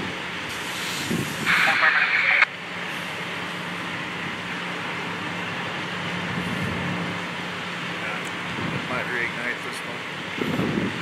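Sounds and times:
fire truck engine idling: 0.0s - 11.0s
loud hiss: 0.5s - 3.1s.

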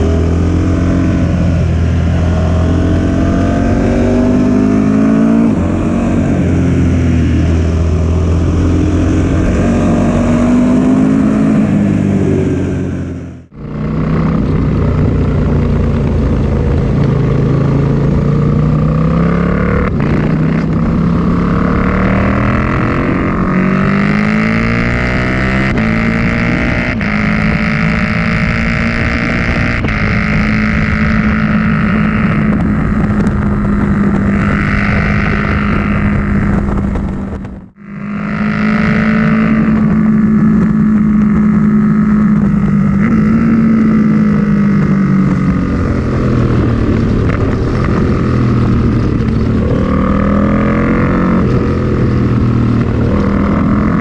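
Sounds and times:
motorcycle engine revving: 0.0s - 54.0s
wind rush: 0.0s - 54.0s.

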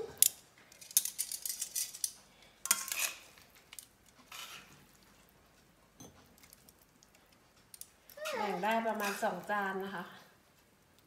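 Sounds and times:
tongs scraping plate: 2.7s - 3.4s, 4.2s - 5.0s, 8.3s - 9.5s.

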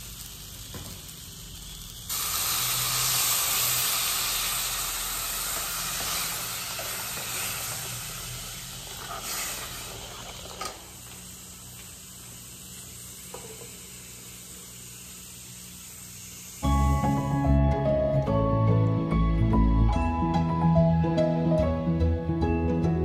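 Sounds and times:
pot simmering: 0.0s - 16.4s
water poured into hot pan sizzling: 0.0s - 16.7s.

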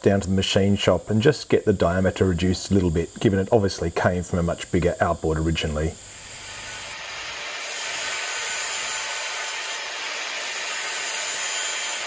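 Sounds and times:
angle grinder grinding metal: 6.1s - 12.0s.

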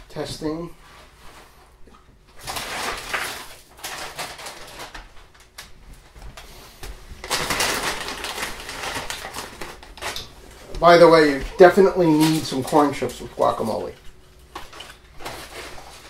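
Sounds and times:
plastic bag crinkling: 2.4s - 5.8s, 7.2s - 16.0s.

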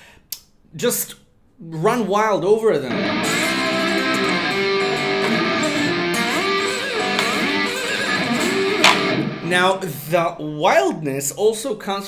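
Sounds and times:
slide electric guitar: 2.9s - 9.8s.

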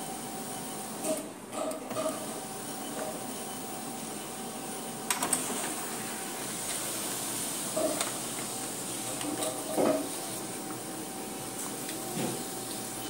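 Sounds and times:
laser printer whirring: 0.0s - 13.0s
printer clicks: 5.1s - 5.5s.

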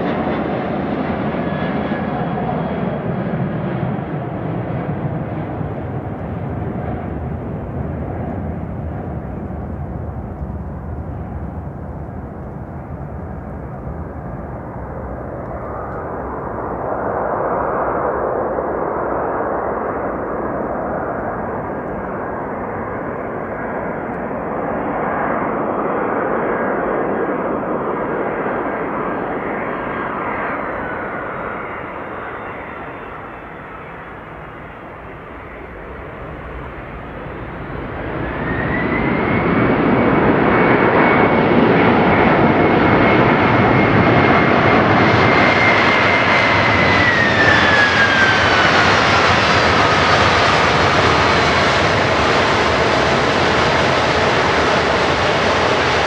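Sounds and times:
jet engines rushing: 0.0s - 56.0s
falling engine whine: 33.2s - 56.0s.

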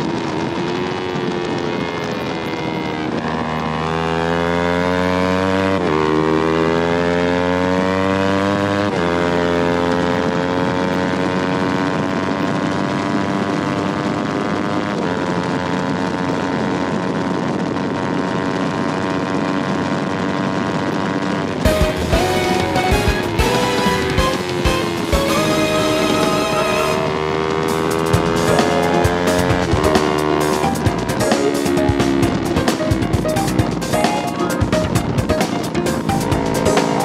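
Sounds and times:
motorcycle engine accelerating: 0.0s - 37.0s.

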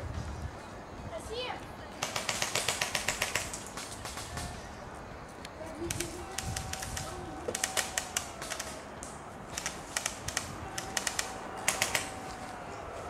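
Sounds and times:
airsoft guns firing: 2.0s - 4.7s, 5.9s - 12.4s.

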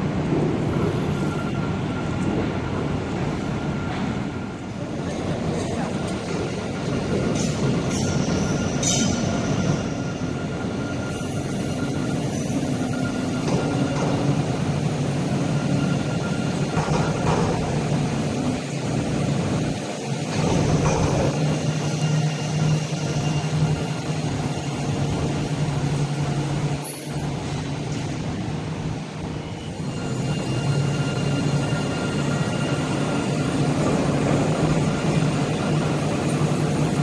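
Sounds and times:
tram wheels rumbling: 0.0s - 37.0s
high wheel squeals: 3.3s - 17.2s, 20.4s - 28.1s, 29.2s - 37.0s.

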